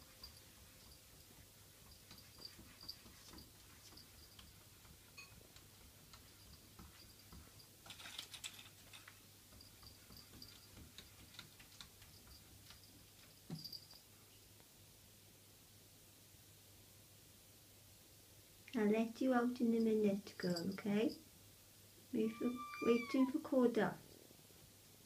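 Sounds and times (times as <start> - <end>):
light clicks and ticks: 1.9 - 14.0.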